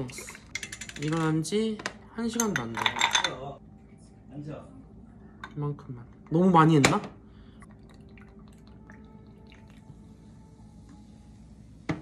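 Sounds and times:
water pouring into a glass mug: 0:07.6 - 0:10.1.

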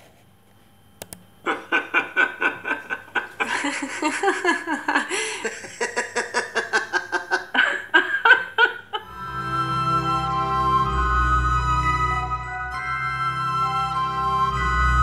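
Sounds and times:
person laughing: 0:01.4 - 0:09.1.

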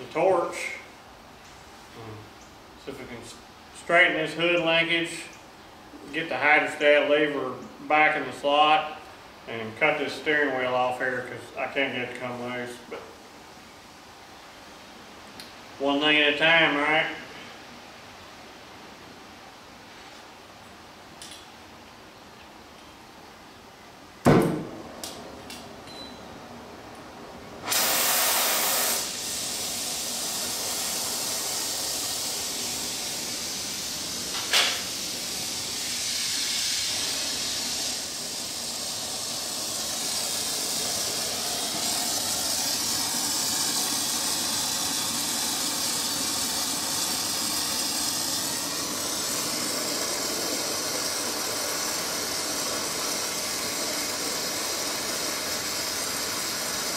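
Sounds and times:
torch lighting pop: 0:24.2 - 0:25.2
gas hiss blast: 0:27.6 - 0:56.9
torch flame hissing: 0:27.6 - 0:56.9.

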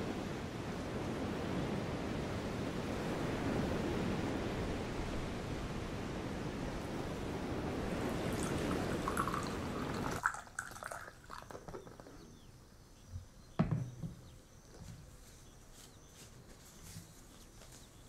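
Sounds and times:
sea surf rushing: 0:00.0 - 0:11.0
coffee poured into cup: 0:08.2 - 0:12.1
flask knocking on table: 0:13.6 - 0:14.2.

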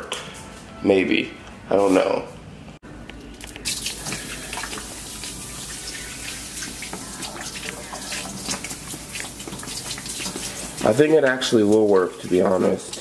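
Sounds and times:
water running into sink: 0:03.7 - 0:13.0.

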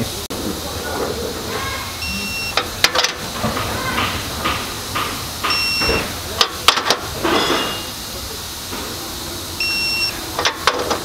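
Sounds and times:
steady hiss: 0:00.0 - 0:11.0
torque wrench beep: 0:02.0 - 0:02.6, 0:05.4 - 0:06.2, 0:07.2 - 0:08.0, 0:09.6 - 0:10.2.

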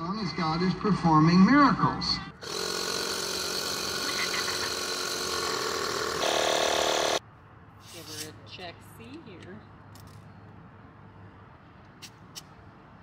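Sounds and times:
portable tire inflator pump running: 0:02.4 - 0:07.2.

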